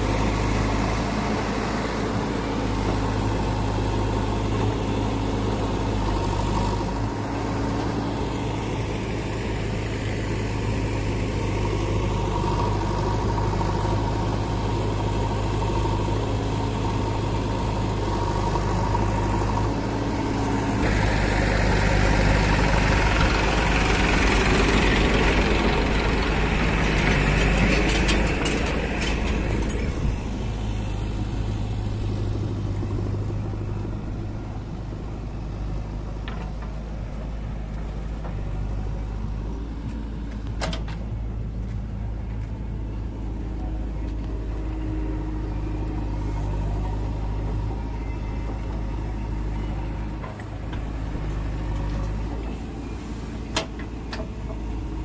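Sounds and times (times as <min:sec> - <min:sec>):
diesel engines running: 0:00.0 - 0:55.0
short clatters: 0:26.5 - 0:30.2.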